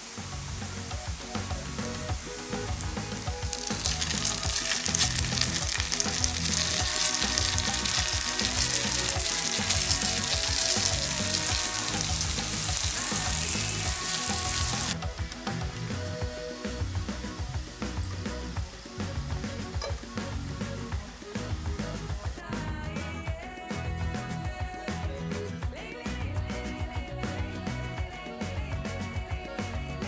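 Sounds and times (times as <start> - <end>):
patties sizzling in butter: 0.0 - 22.4
soft background music: 0.0 - 23.9.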